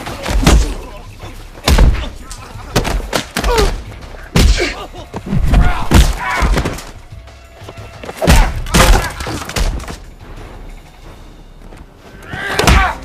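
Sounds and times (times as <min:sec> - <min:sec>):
punches and body hits: 0:00.0 - 0:00.9, 0:01.6 - 0:06.9.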